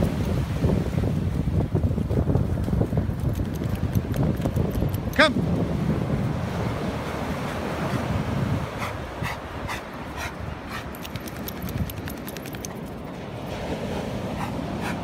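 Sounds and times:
wind rumble on microphone: 0.0s - 15.0s
dog panting: 6.7s - 15.0s.

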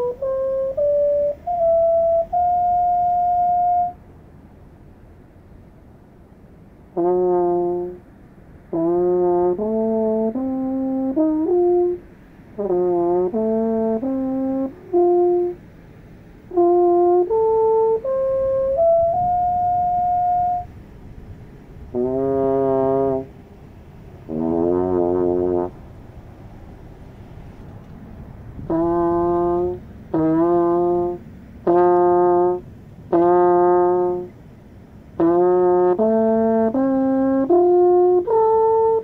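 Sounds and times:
alphorn melody: 0.0s - 4.0s, 7.0s - 8.1s, 8.7s - 15.8s, 16.5s - 20.8s, 21.9s - 23.4s, 24.3s - 25.8s, 28.6s - 34.4s, 35.2s - 39.0s.

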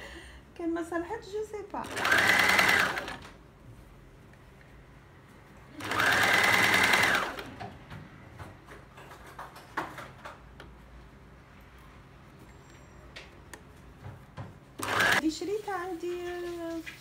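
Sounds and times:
sewing machine motor whine: 1.8s - 3.3s, 5.8s - 7.5s, 14.8s - 15.2s.

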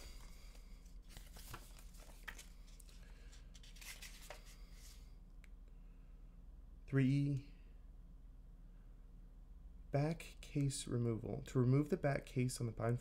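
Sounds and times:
paper rustling and crinkling: 0.0s - 5.0s
low room hum: 0.0s - 13.0s.

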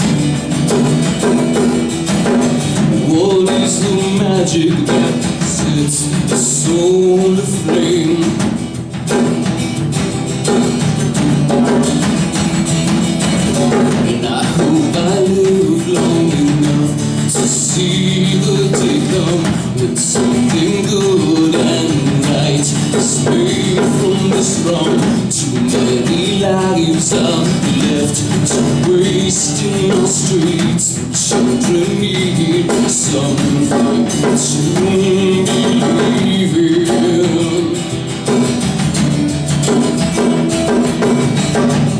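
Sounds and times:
acoustic guitar song: 0.0s - 41.9s
percussive beat: 0.0s - 41.9s
man singing: 2.2s - 8.8s, 13.4s - 38.6s.

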